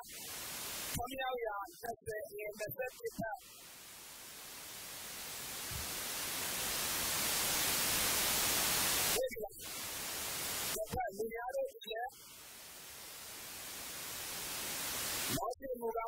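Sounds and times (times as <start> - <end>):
recording hiss: 0.0 - 16.0
person speaking: 1.0 - 3.6, 9.1 - 9.8, 10.6 - 12.2, 15.3 - 16.0.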